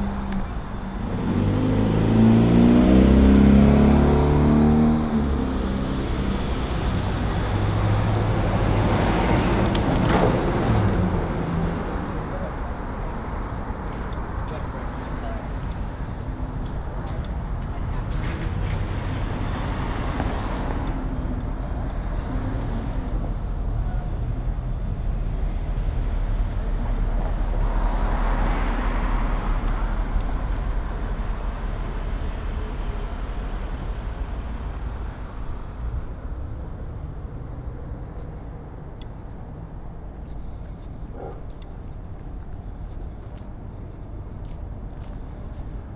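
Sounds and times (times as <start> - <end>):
traffic rumble: 0.0 - 45.9
vehicle passing close by: 0.9 - 12.0.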